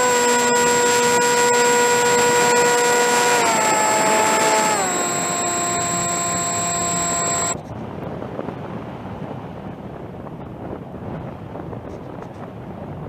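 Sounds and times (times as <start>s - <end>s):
model plane motor whining: 0.0s - 7.6s.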